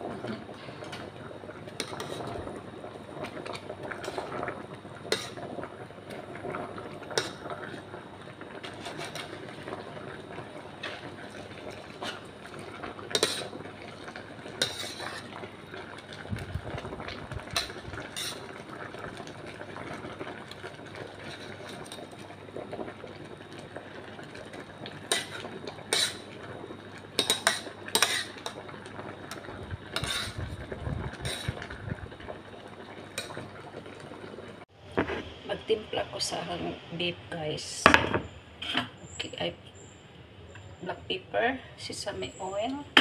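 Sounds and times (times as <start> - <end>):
boiling water hissing: 0.0 - 37.9.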